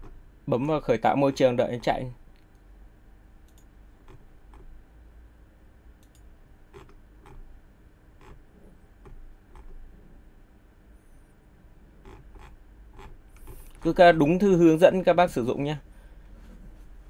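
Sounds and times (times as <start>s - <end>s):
faint low hum: 0.0s - 17.0s
computer mouse clicks: 3.5s - 4.7s, 6.0s - 7.4s, 8.2s - 8.4s, 9.0s - 9.8s.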